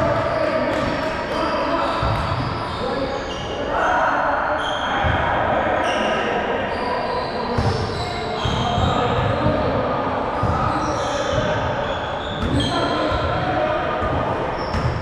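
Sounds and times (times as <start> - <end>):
basketball bouncing on court: 0.0 - 2.8, 7.6 - 9.8, 10.4 - 15.0
shoes squeaking on floor: 0.0 - 3.6, 6.7 - 9.5, 10.4 - 13.4
players' voices echoing: 0.0 - 15.0.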